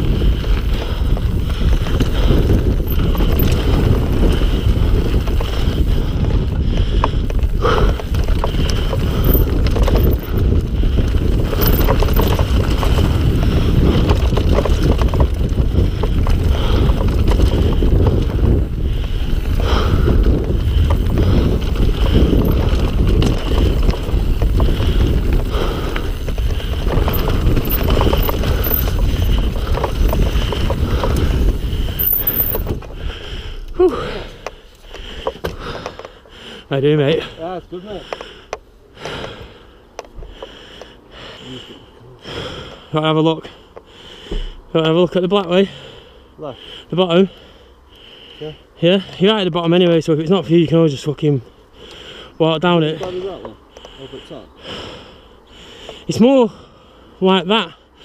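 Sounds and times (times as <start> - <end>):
bike rattling and knocking: 0.0 - 33.2
wind buffeting microphone: 0.0 - 33.8
tyres running over ground: 0.0 - 41.7.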